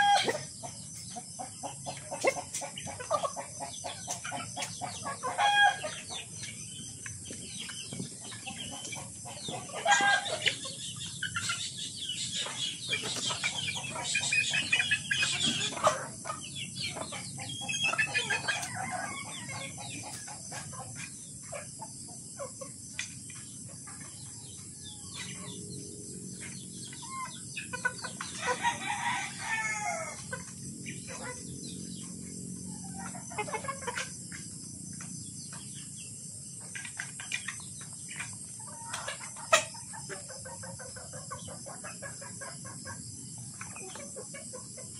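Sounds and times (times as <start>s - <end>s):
roosters crowing: 0.0s - 0.8s, 4.8s - 6.4s, 9.3s - 10.8s, 17.6s - 20.0s, 24.6s - 34.1s
chickens clucking: 0.0s - 44.9s.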